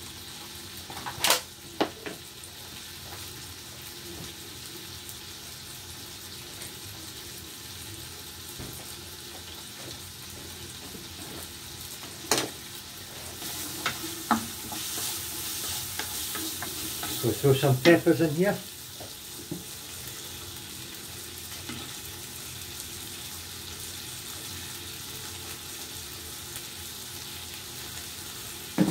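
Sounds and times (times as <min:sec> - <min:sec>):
chicken sizzling in oil: 0:00.0 - 0:28.9
wooden spatula knocking pan: 0:13.5 - 0:17.2.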